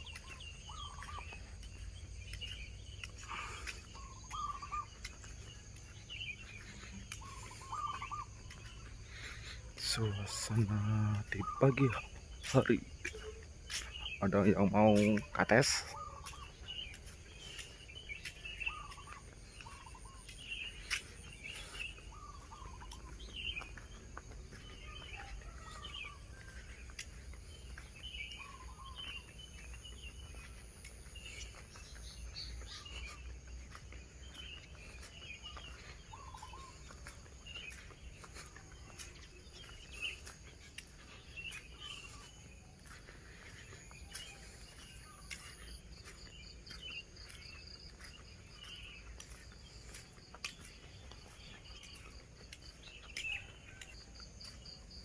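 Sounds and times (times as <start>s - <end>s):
birds chirping: 0.0s - 55.0s
insects trilling: 2.2s - 26.9s.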